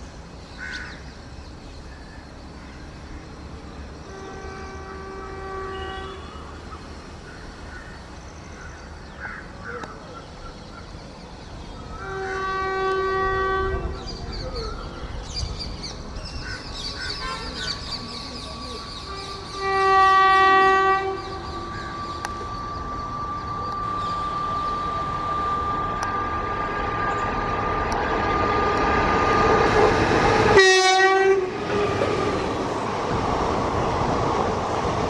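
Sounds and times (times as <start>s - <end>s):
train rumbling: 0.0s - 35.0s
locomotive horn blasts: 4.0s - 6.6s, 12.0s - 14.0s, 19.1s - 27.6s, 30.5s - 32.0s
high metallic squealing: 21.2s - 27.7s.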